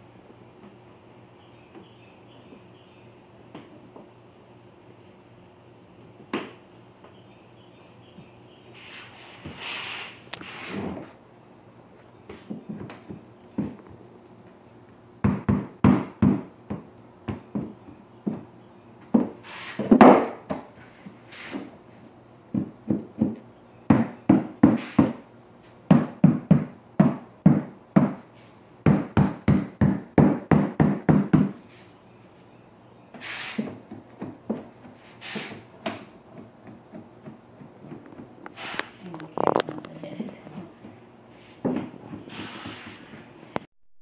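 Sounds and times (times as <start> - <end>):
mallet knocking vinyl planks: 15.2 - 18.5, 19.1 - 20.7, 22.5 - 25.2, 25.9 - 28.2, 28.8 - 31.6.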